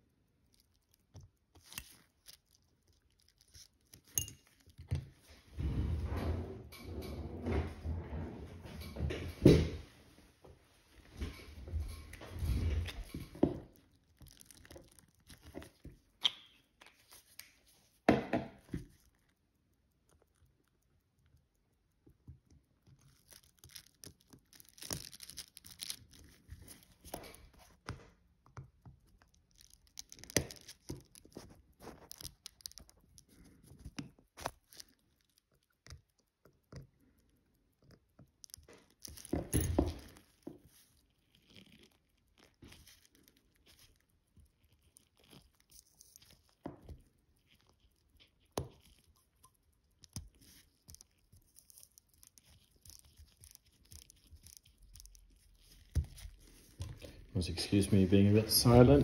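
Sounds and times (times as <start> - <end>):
small clicks and taps of tweezers: 18.4 - 39.3, 40.3 - 57.1.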